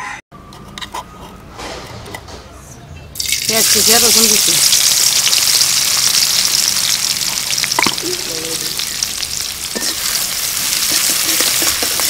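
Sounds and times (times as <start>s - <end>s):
onion sizzling in hot oil: 3.2s - 12.0s.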